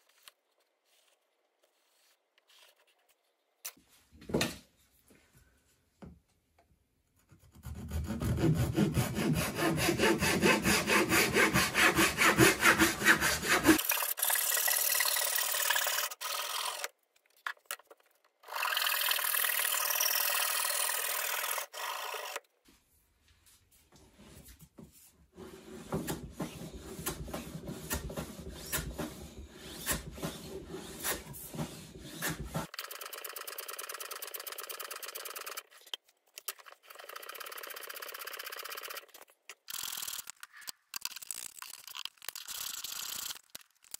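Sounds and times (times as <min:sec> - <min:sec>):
hand plane scraping wood: 0:07.6 - 0:13.8, 0:25.3 - 0:32.7
pull saw sawing wood: 0:07.6 - 0:16.9.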